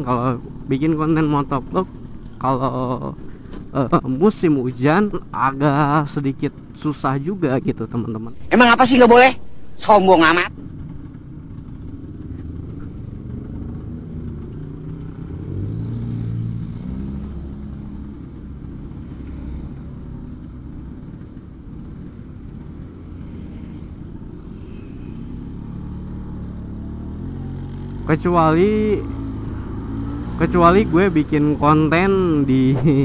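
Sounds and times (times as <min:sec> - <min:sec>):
scooter engine running: 0:10.5 - 0:32.4.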